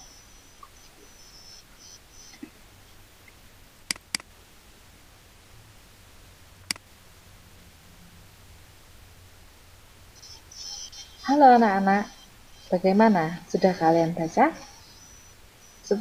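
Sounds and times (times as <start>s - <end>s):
faint low hum: 0.0s - 16.0s
computer mouse clicking: 3.9s - 4.3s.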